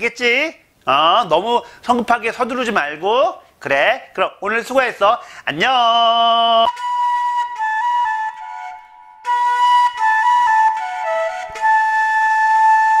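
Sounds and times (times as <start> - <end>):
bamboo flute melody: 6.6 - 13.0.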